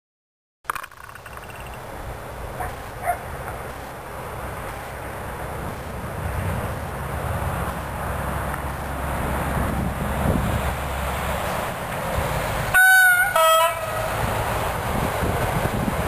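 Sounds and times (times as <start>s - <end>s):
outdoor background hiss and rumble: 0.7s - 16.0s
dog barking: 2.6s - 3.3s.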